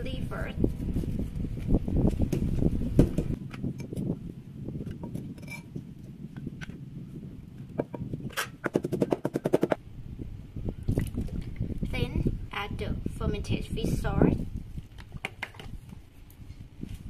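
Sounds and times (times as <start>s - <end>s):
pestle pounding in mortar: 7.8s - 9.8s.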